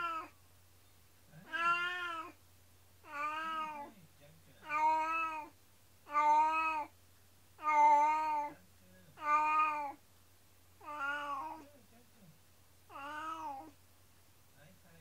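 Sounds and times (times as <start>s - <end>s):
cat meowing plaintively: 0.0s - 0.3s, 1.4s - 2.4s, 3.0s - 3.9s, 4.6s - 6.9s, 7.6s - 8.6s, 9.2s - 10.0s, 10.8s - 11.7s, 12.9s - 13.8s
cat chirping softly: 1.4s - 2.4s, 3.0s - 3.9s, 4.6s - 7.0s, 7.6s - 10.0s, 10.8s - 11.7s, 12.9s - 13.8s.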